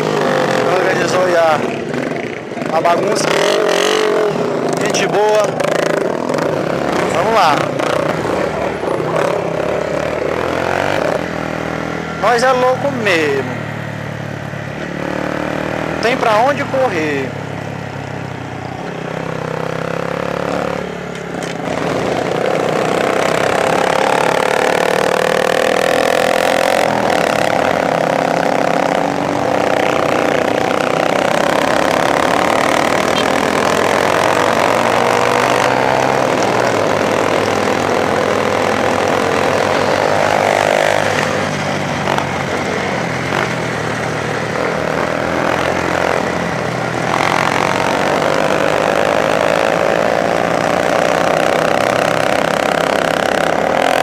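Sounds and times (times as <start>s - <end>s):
small motorcycle engine accelerating: 19.0s - 54.0s.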